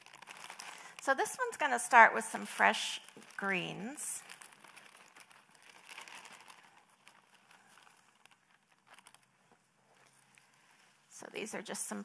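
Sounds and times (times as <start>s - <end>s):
plastic bag crinkling: 0.0s - 12.0s
leaves rustling: 3.1s - 9.2s.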